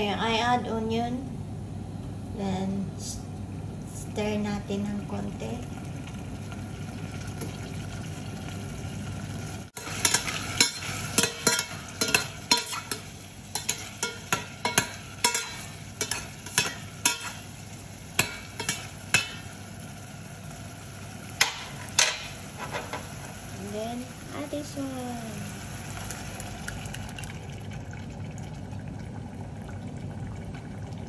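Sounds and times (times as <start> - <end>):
food sizzling in oil: 5.0 - 27.4
spoon knocking and scraping pot: 10.0 - 17.4.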